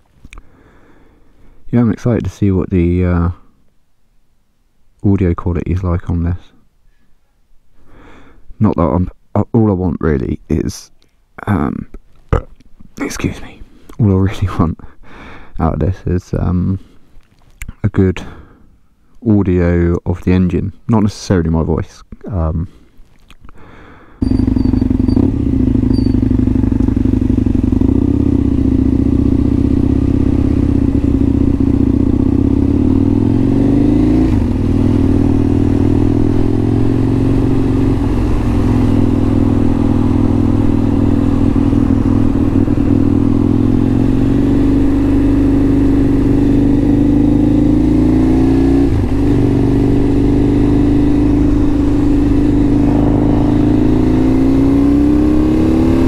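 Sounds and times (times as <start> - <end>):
motorcycle engine revving: 24.2 - 56.0.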